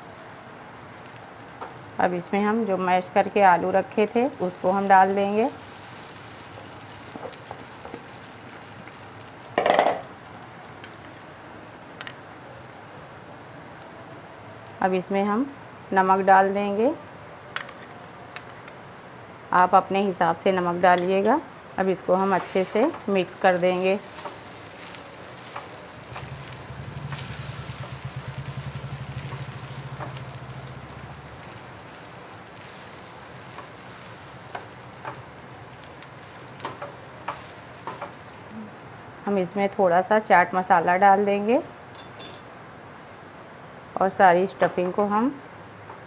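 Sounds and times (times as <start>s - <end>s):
faint sizzling: 0.0s - 38.7s
pulsing engine hum: 25.0s - 32.3s.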